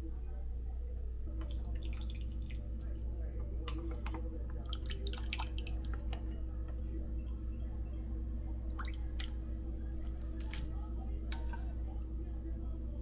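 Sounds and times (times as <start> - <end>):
steady low hum: 0.0 - 13.0
sauce squishing into glass bowl: 10.1 - 10.7.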